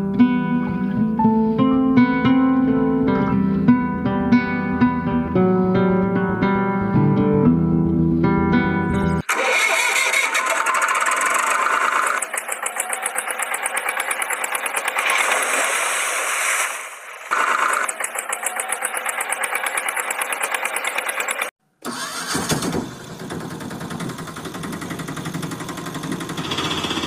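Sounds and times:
acoustic guitar music: 0.0 - 9.2
tractor engine putter: 9.0 - 15.8, 17.2 - 27.0.

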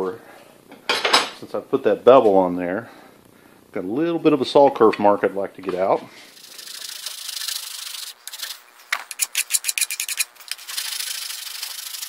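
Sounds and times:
file rasping on metal: 9.1 - 12.0.

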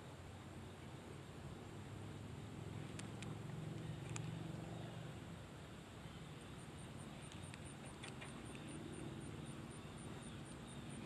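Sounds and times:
insect chirping: 0.0 - 11.0
soft clicks: 2.8 - 4.4, 7.2 - 8.8.

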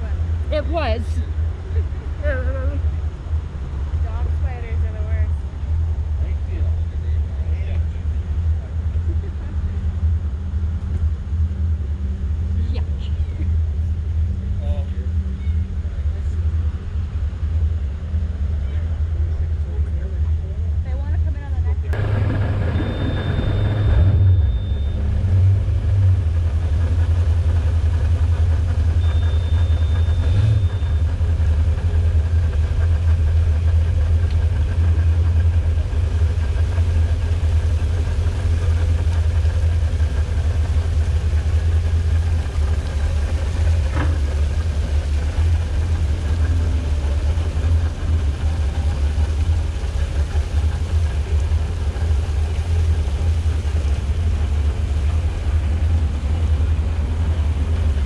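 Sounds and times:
boat engine idling: 0.0 - 58.0.

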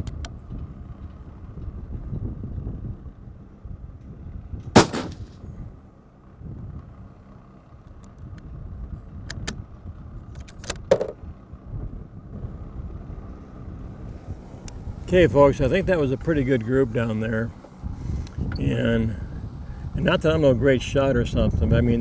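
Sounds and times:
steady low rumble: 0.0 - 22.0
rifle shot with echo: 4.7 - 5.4.

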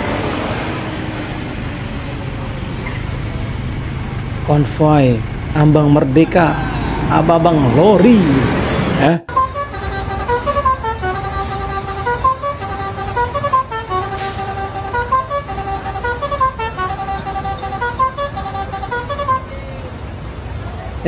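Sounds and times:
truck engines idling: 0.0 - 21.0
musical air horn playing a tune: 9.3 - 19.7.

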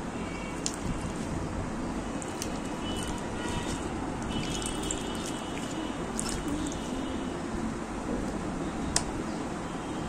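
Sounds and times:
steady background noise: 0.0 - 10.0
hands squishing wet slime: 0.6 - 1.2, 2.1 - 7.0.

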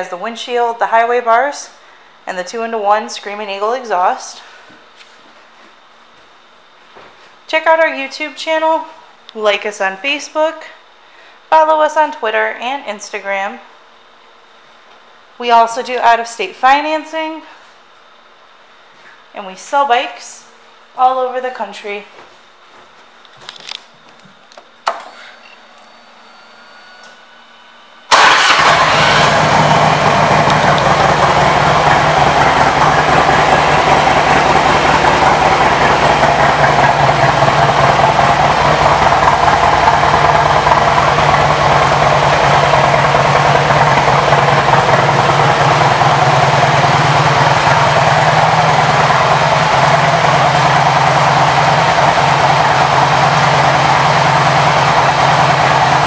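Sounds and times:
motorcycle engine idling: 28.2 - 56.0.

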